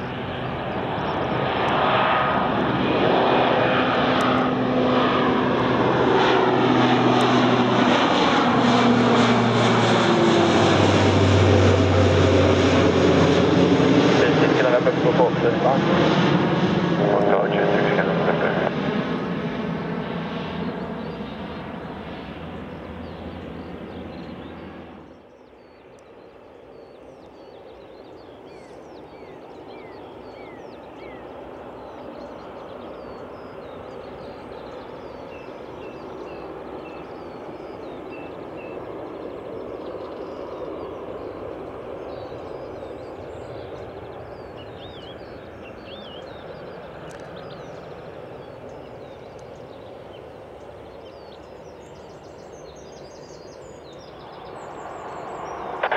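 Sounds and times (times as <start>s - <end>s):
small birds chirping: 0.0s - 2.3s, 20.5s - 55.9s
turboprop aircraft drone: 0.0s - 55.9s.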